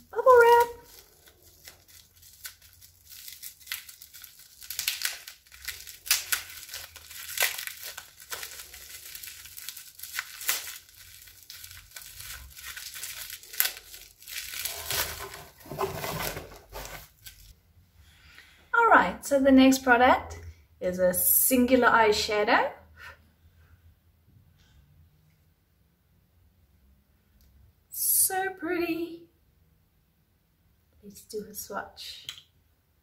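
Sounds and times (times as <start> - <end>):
bubble wrap crinkling: 0.0 - 17.6.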